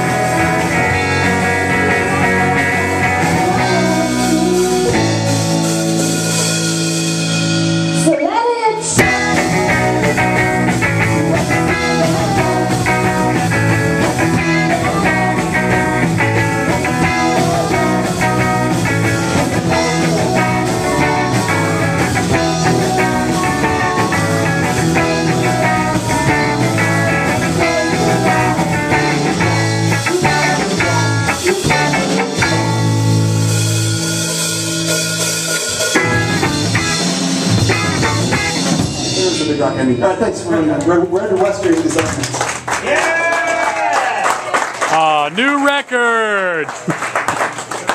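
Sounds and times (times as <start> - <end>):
rising guitar slide: 0.0 - 8.0, 9.0 - 39.3
rock band playing: 0.0 - 43.2, 44.9 - 46.8
woman singing: 1.7 - 5.3, 8.0 - 13.5, 14.2 - 18.6, 30.0 - 32.3.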